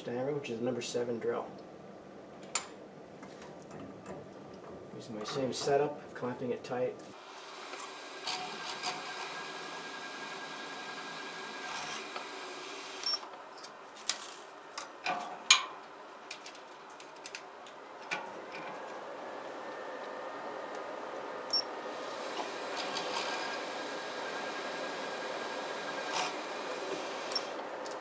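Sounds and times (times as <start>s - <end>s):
milling machine drilling brass: 22.2s - 27.6s.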